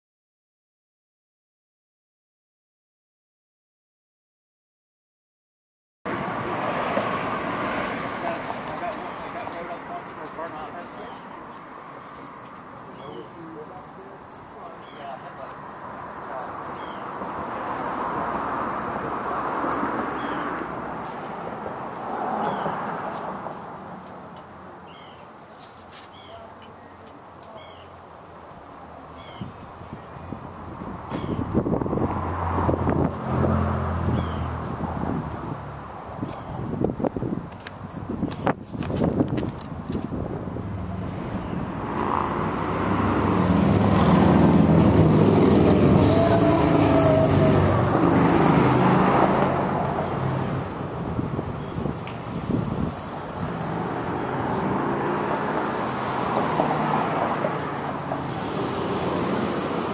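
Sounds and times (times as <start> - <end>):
vehicle engine passing by: 6.1 - 10.8, 16.4 - 23.8, 30.6 - 36.0, 40.6 - 59.9
bird chirping: 12.9 - 13.5, 16.0 - 17.2, 20.2 - 20.5, 24.0 - 28.5, 29.1 - 29.6.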